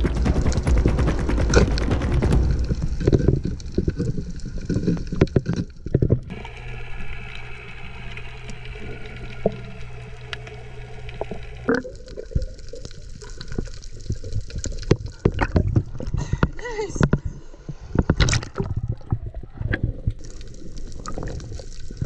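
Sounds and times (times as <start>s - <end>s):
steady low hum: 0.0s - 4.1s, 6.3s - 11.9s
moving water underwater: 1.5s - 22.0s
short underwater clicks and crackles: 2.3s - 22.0s.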